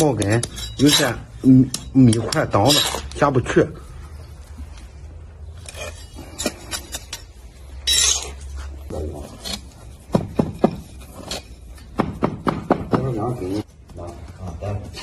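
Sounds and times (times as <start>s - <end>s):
sharp knocks: 11.9s - 13.2s.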